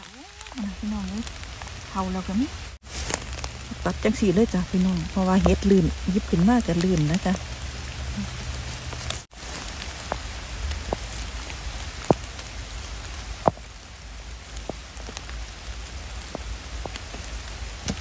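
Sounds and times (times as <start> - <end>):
rain pattering on undergrowth: 0.0 - 18.0.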